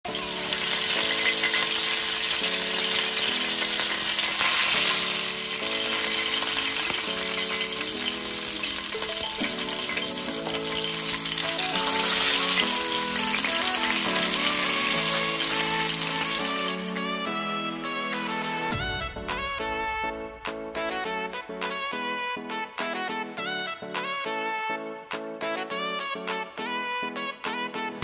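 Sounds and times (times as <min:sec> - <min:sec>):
fish sizzling in hot oil: 0:00.1 - 0:17.0
gentle background music: 0:00.1 - 0:28.0.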